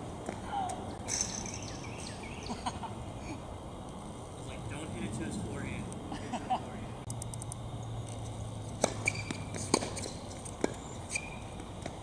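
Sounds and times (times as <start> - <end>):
tennis ball being struck: 8.8 - 12.0.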